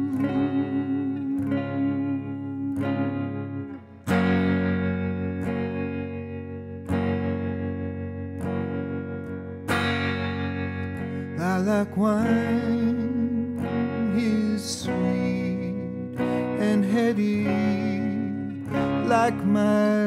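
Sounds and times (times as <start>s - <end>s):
man singing: 0.0s - 3.2s, 11.2s - 20.0s
guitar ringing chords: 0.0s - 20.0s.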